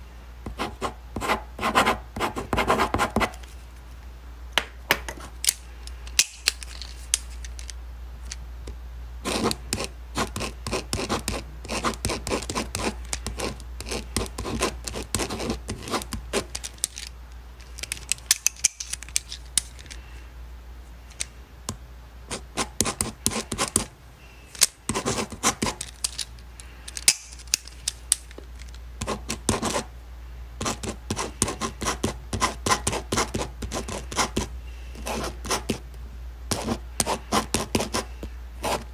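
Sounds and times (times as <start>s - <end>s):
low steady hum: 0.0s - 38.9s
pen scratching on paper: 0.5s - 3.4s, 9.2s - 16.5s, 22.3s - 23.9s, 24.9s - 25.8s, 29.0s - 29.9s, 30.6s - 35.8s, 36.5s - 38.9s.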